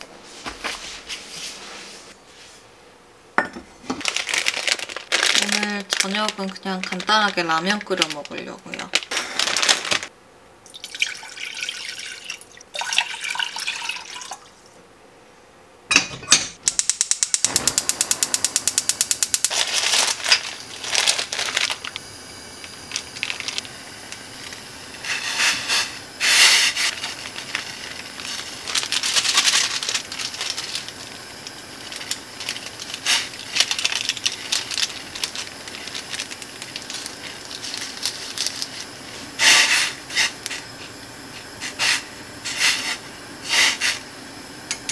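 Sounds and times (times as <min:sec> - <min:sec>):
packaging rustling: 0:03.8 - 0:10.1, 0:19.2 - 0:22.0, 0:22.6 - 0:25.7, 0:26.6 - 0:41.0
water pouring into a pot: 0:10.6 - 0:14.5
gas stove igniter clicks: 0:16.6 - 0:19.5
gas burner hissing: 0:16.6 - 0:44.9.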